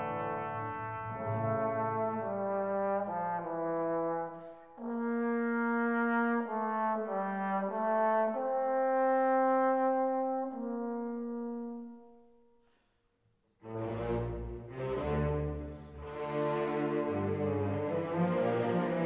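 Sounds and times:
slow brass melody: 0.0s - 12.6s.

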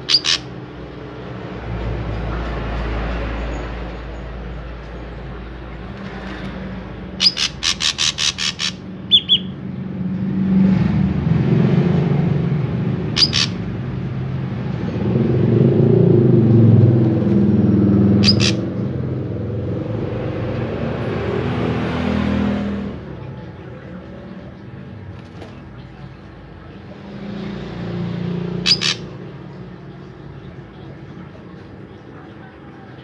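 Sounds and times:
bird sharp harsh calls: 0.0s - 0.6s, 7.1s - 9.6s, 13.1s - 13.8s, 18.1s - 18.9s, 28.4s - 29.4s.

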